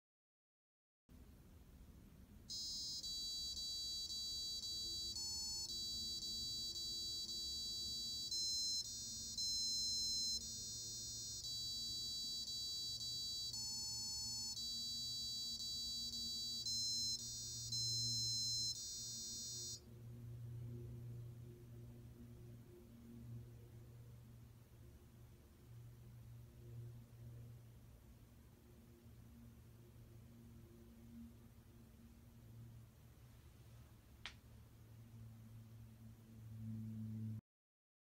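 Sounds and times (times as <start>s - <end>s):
faint low hum: 1.1s - 37.4s
electronic buzzer beeping a tune: 2.5s - 19.8s.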